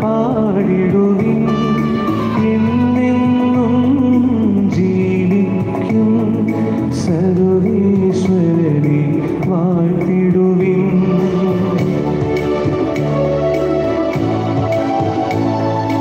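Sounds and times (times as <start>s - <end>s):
instrumental accompaniment: 0.0s - 16.0s.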